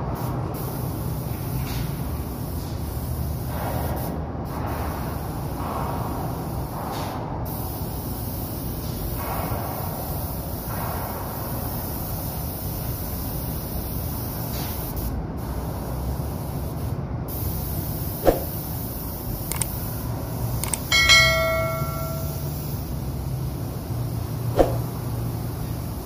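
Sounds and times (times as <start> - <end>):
spray gun hissing: 2.2 - 6.7, 7.5 - 26.0
low hum: 20.7 - 22.7
bell-like chime: 20.9 - 22.5.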